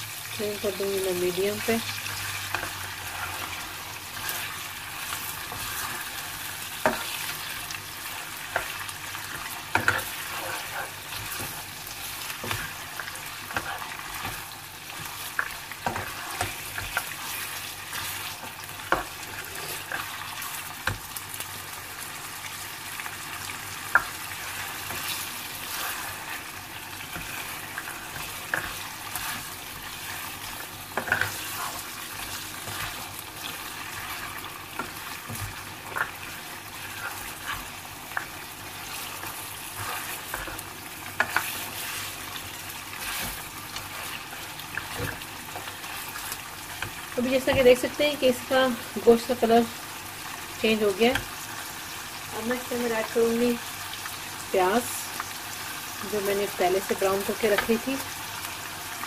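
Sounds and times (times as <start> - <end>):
meat sizzling in a frying pan: 0.0 - 59.0
spatula scraping a pan: 1.6 - 21.0, 23.4 - 48.4.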